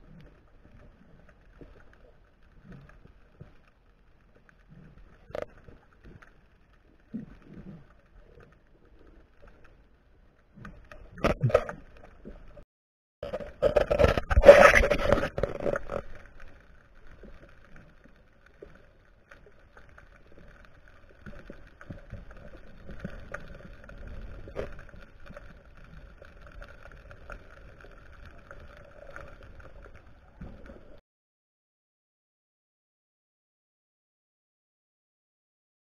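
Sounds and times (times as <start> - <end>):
muffled underwater rush: 13.2 - 31.0.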